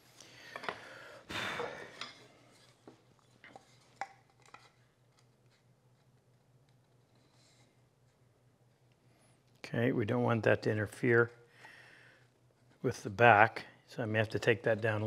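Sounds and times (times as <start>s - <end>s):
clicks and knocks of handling tools: 0.5s - 0.9s, 1.9s - 5.3s.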